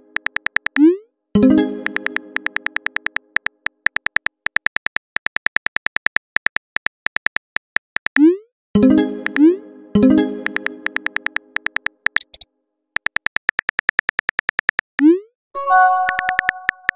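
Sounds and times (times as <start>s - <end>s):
phone keyboard clicks: 0.1s - 0.8s, 1.8s - 8.2s, 10.4s - 12.4s, 13.0s - 15.0s, 16.1s - 16.9s
message chime: 15.6s - 16.9s.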